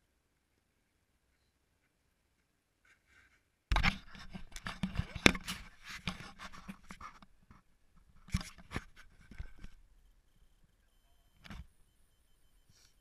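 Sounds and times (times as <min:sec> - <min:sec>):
camera handling noise: 0:03.7 - 0:07.3.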